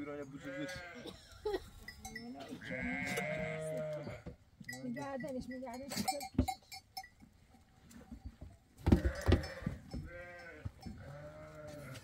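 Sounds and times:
goats bleating: 0.0s - 1.4s, 2.4s - 4.3s, 8.9s - 12.0s.

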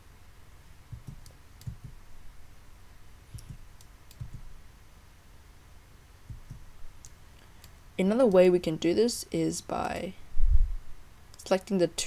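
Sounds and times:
low steady hum: 0.0s - 12.0s
mouse and keyboard clicks: 0.9s - 2.0s, 3.3s - 4.5s, 6.3s - 7.7s.

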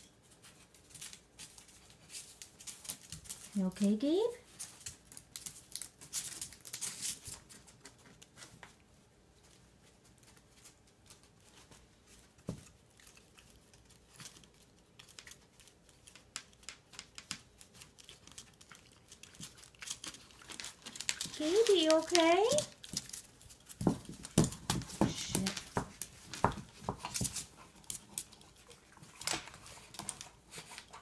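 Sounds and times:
dog claws scraping on tile: 12.3s - 31.0s.

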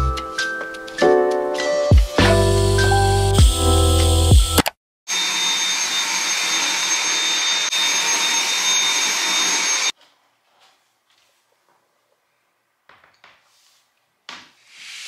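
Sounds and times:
vacuum cleaner whining: 5.1s - 9.9s.

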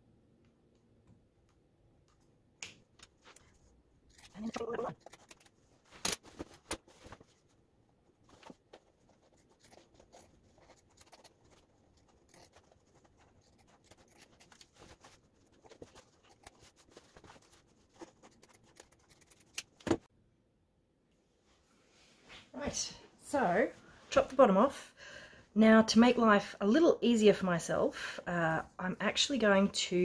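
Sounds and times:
scissors cutting fabric: 4.1s - 6.2s, 9.1s - 19.7s.

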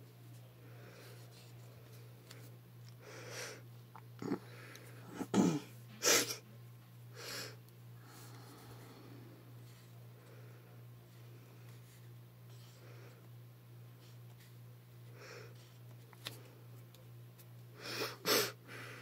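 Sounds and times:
steady low hum: 0.0s - 19.0s
person breathing softly: 7.1s - 13.3s, 17.8s - 19.0s
person sniffing sharply: 17.8s - 19.0s.

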